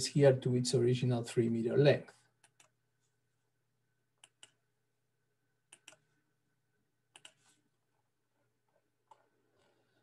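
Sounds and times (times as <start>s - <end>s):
computer mouse double-clicks: 7.1s - 7.4s.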